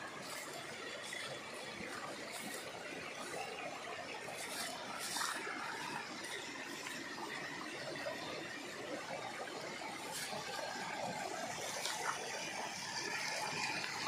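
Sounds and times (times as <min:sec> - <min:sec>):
wading splashes: 0:00.0 - 0:08.0
stream running over stones: 0:00.0 - 0:14.0.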